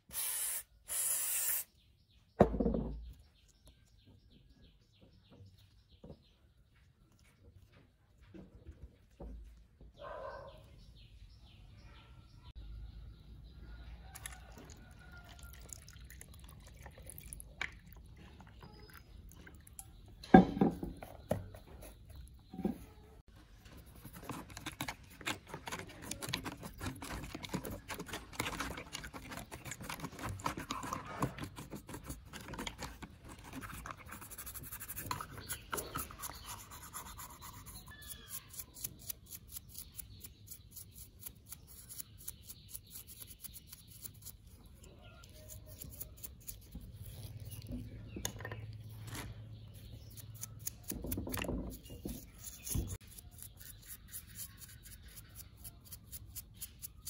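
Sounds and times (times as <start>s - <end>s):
brush scrubbing plastic: 23.8s - 38.4s.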